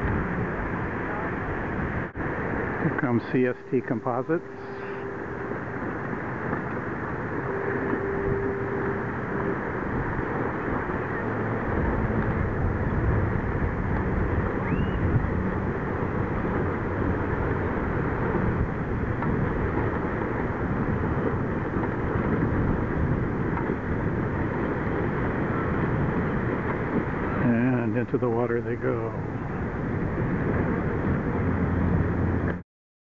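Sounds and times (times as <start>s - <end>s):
small waves breaking on shore: 0.0s - 32.6s
wind noise on microphone: 0.0s - 32.6s.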